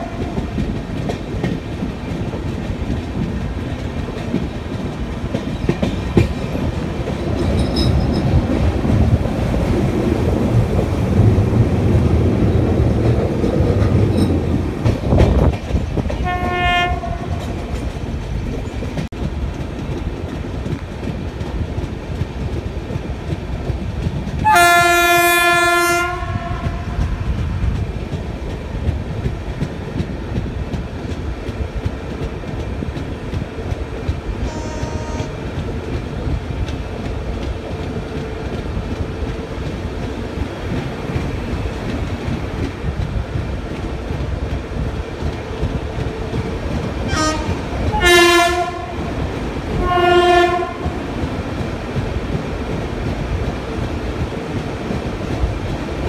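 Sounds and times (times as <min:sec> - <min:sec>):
train rumbling on track: 0:00.0 - 0:56.0
locomotive horn blasts: 0:16.2 - 0:17.4, 0:24.4 - 0:27.0, 0:34.5 - 0:35.4, 0:47.1 - 0:49.0, 0:49.8 - 0:51.0.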